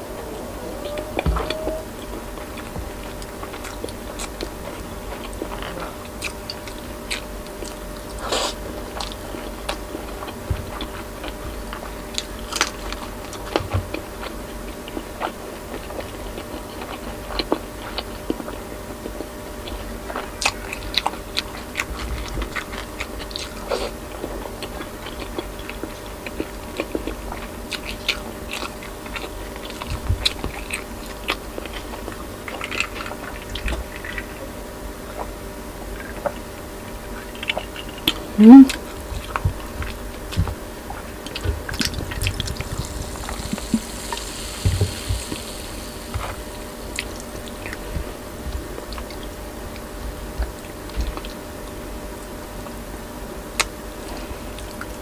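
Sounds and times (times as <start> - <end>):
faint steady hum: 0.0 - 55.0
chewing and biting: 0.8 - 52.8.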